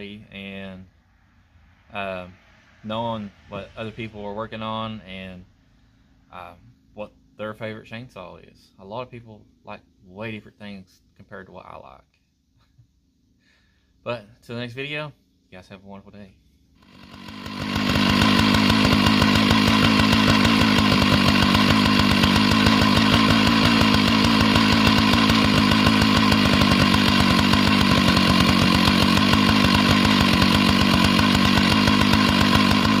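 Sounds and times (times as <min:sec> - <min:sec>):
chainsaw running at high speed: 0:16.8 - 0:33.0.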